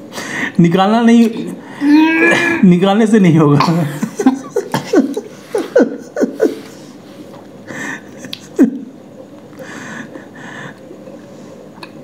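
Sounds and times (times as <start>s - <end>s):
man chuckling: 3.7s - 6.9s, 7.7s - 8.9s.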